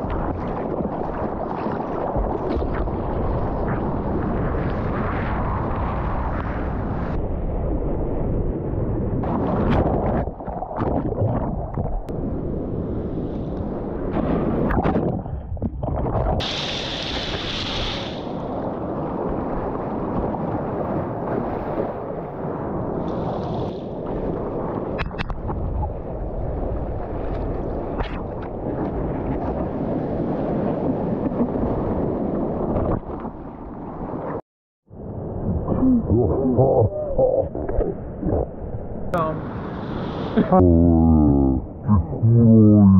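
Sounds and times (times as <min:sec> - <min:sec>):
seawater rushing and splashing: 0:15.9 - 0:25.6.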